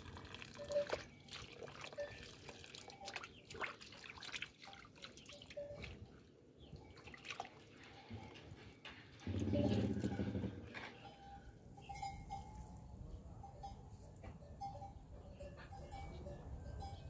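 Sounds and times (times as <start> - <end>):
water splashing in metal basin: 0.0 - 6.0, 6.8 - 11.0.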